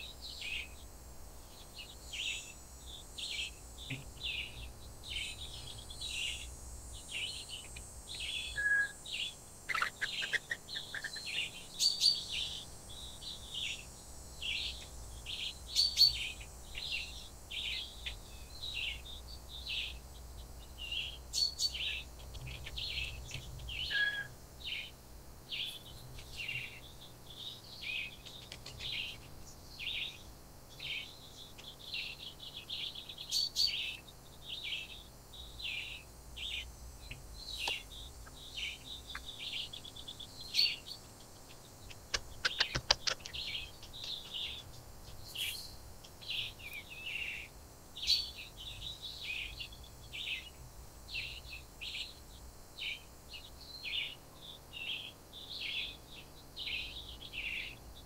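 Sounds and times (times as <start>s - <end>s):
birds chirping: 1.6s - 52.1s
sharp clicks: 41.9s - 44.2s.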